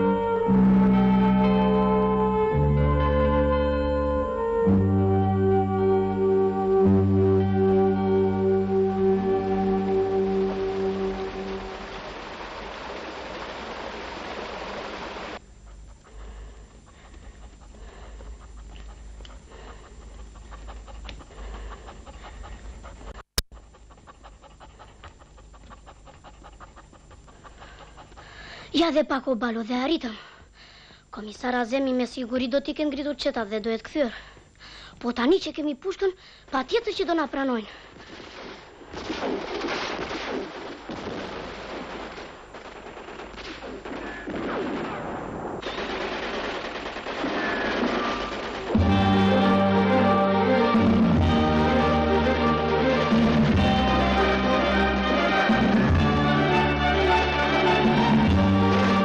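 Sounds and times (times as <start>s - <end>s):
dog panting: 15.6s - 29.0s
rapid gunfire: 38.2s - 49.2s.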